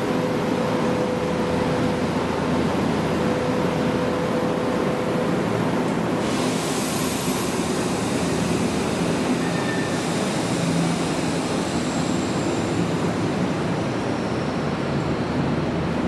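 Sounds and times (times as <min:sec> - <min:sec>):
electric train passing: 0:00.0 - 0:16.0
high wheel squeals: 0:09.2 - 0:13.1, 0:14.0 - 0:15.4.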